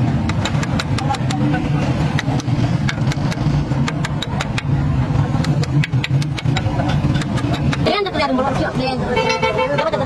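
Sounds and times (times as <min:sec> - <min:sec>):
engine droning: 0:00.0 - 0:10.0
sharp clicks: 0:02.1 - 0:04.7.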